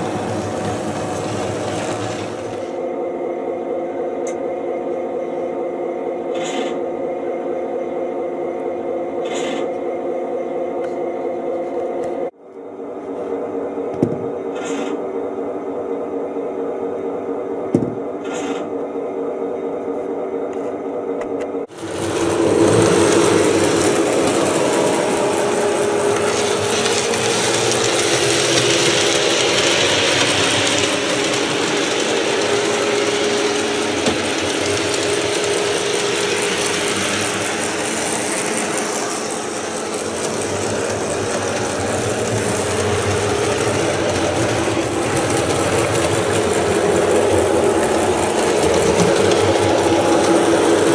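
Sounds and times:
model train motor whirring: 0.0 - 2.7, 21.8 - 50.9
wheels on track: 0.0 - 2.8, 21.6 - 50.9.

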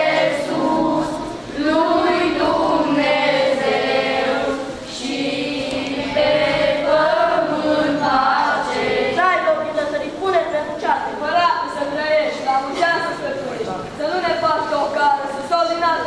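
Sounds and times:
boys singing in unison: 0.0 - 9.9.

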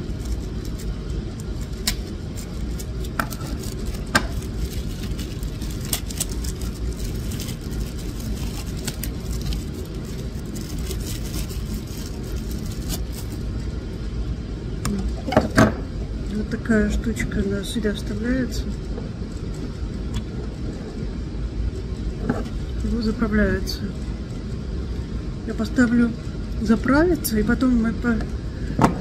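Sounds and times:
plastic wrapping crinkling: 0.0 - 13.6
steady low rumble: 0.0 - 29.0.

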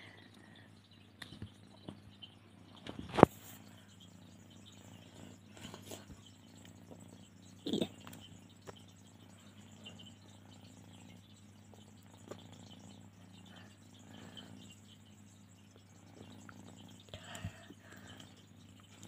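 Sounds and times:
steady low hum: 0.0 - 19.0
cat rustling and patting: 2.8 - 4.5.

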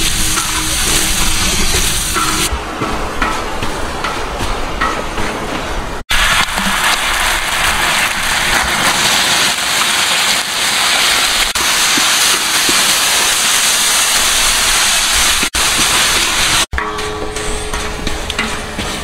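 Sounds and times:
loud steady hiss: 0.0 - 2.7, 6.1 - 16.7.

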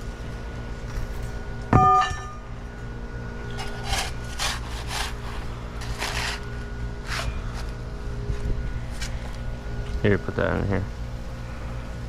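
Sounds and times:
shovel scraping sand: 3.6 - 7.7.

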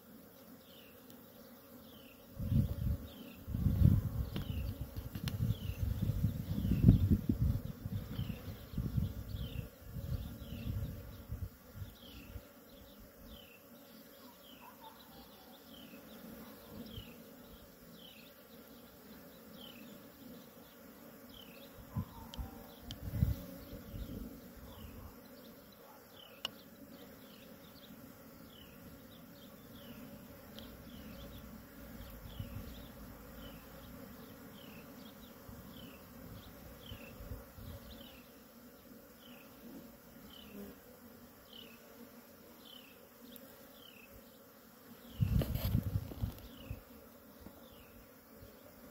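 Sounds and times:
bees buzzing: 0.0 - 48.9.

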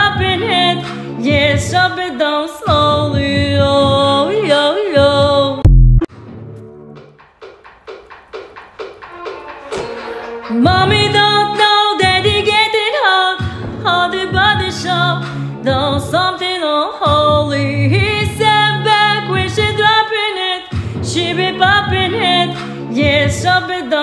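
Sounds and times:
woman singing wordless melody: 0.0 - 5.6, 10.5 - 24.0
musical accompaniment: 5.6 - 12.5.

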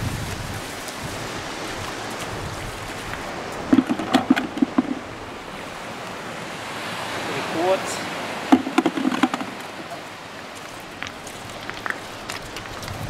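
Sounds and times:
surf: 0.0 - 13.0
wind: 0.0 - 13.0
hard clicks and knocks: 3.7 - 5.0, 8.5 - 9.6.

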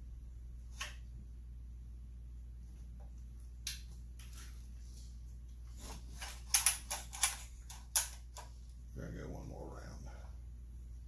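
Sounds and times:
steady low hum: 0.0 - 11.0
chainsaw parts clicking and rattling: 6.2 - 8.2.

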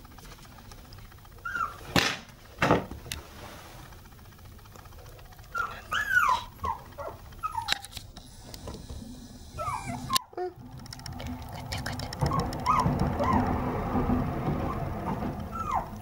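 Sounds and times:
puppy whimpering: 1.4 - 1.9, 5.5 - 7.8, 9.6 - 10.6, 11.2 - 13.6, 15.1 - 16.0.

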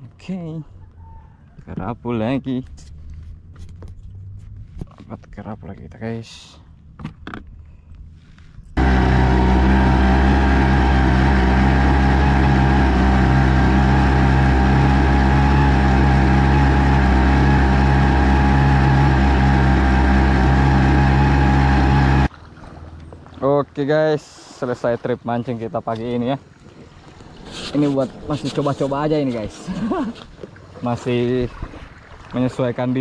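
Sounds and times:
small outboard motor running: 8.8 - 23.8.

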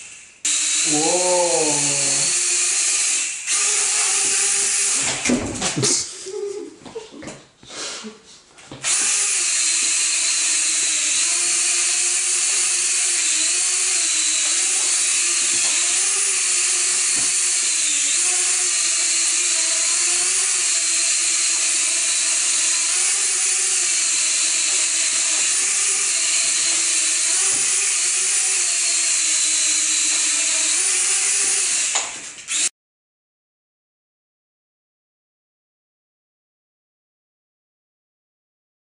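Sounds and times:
quadcopter motors whining: 0.1 - 5.3, 8.8 - 32.7.

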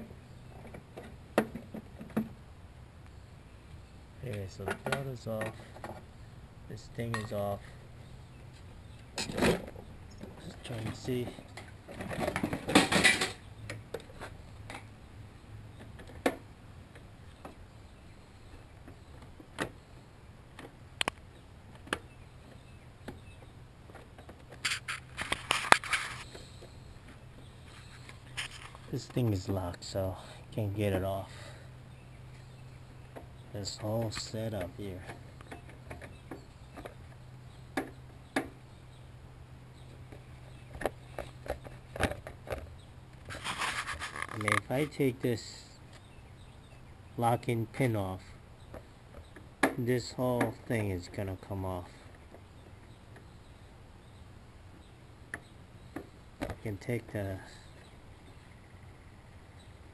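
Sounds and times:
steady low hum: 0.0 - 59.9
rattling and scraping: 8.5 - 14.9, 23.8 - 29.5, 39.8 - 45.0.

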